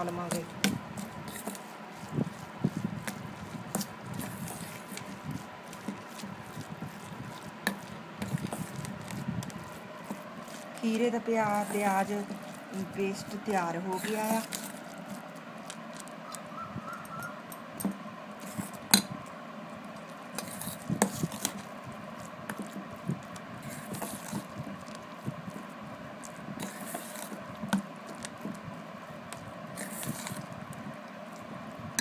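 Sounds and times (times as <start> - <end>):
metal spoon scraping bowl: 1.2 - 1.6, 13.8 - 14.8, 20.4 - 21.6, 26.6 - 27.4, 29.8 - 30.4.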